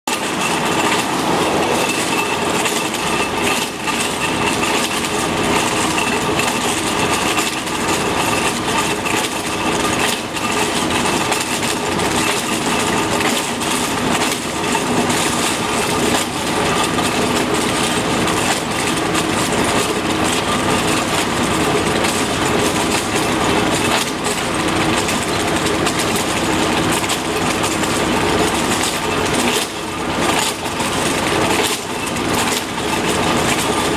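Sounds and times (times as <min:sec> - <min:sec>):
diesel engine under load: 0:00.1 - 0:33.9.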